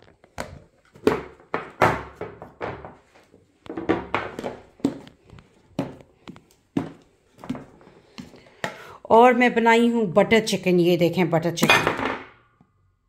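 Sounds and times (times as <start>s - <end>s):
plastic boxes knocking on countertop: 0.9s - 5.1s.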